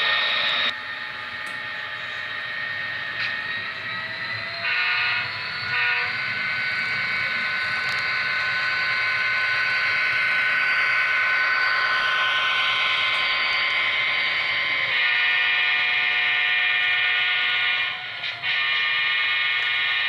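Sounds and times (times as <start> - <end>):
locomotive running sound: 0.0 - 20.0
held high tone: 3.7 - 16.5
model locomotive horn blasts: 4.6 - 20.0.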